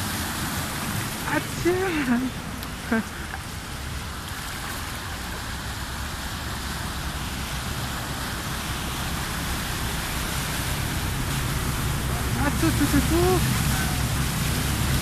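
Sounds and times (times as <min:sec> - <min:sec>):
car wheels splashing water: 0:00.0 - 0:15.0
floodwater rushing: 0:00.0 - 0:15.0.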